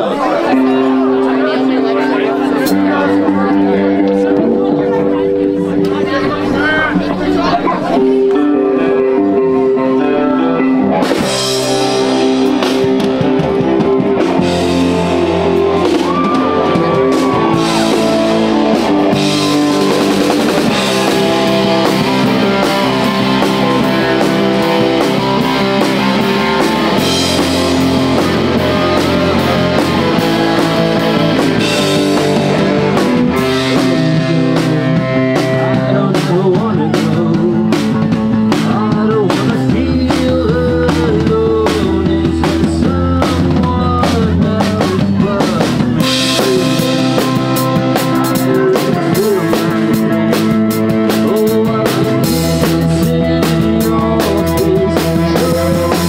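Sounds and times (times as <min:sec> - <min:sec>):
electric and acoustic guitars: 0:00.0 - 0:56.0
keyboard: 0:00.0 - 0:56.0
drum kit: 0:02.4 - 0:56.0.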